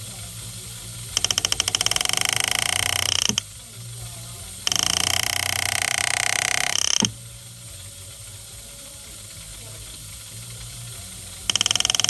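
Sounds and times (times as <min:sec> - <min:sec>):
power graver buzzing: 0:00.0 - 0:12.0.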